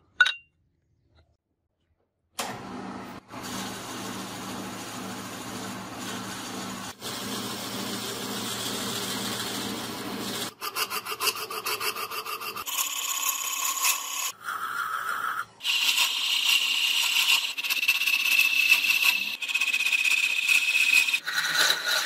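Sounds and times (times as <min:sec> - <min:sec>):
drill boring into wood: 0:15.6 - 0:22.0.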